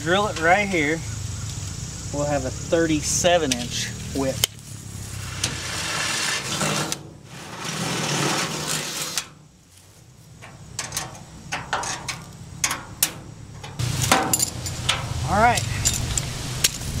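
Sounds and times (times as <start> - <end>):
sharp metal clicks and knocks: 10.4 - 16.8.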